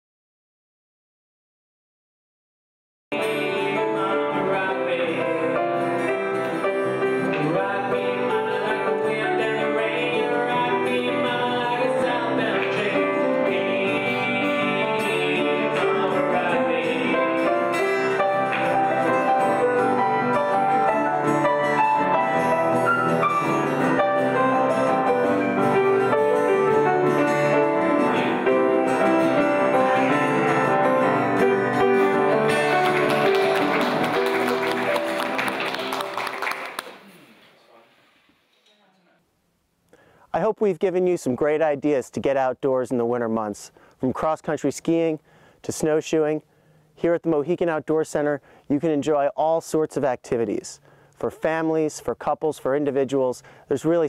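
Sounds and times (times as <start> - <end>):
man singing into a microphone: 3.1 - 19.2, 28.0 - 28.6
acoustic guitar playing: 3.1 - 36.4, 51.2 - 54.0.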